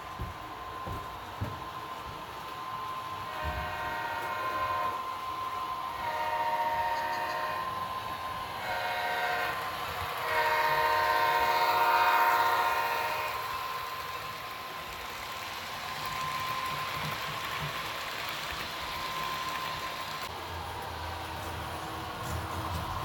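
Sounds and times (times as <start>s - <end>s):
model locomotive air horn blasts: 3.1s - 14.4s.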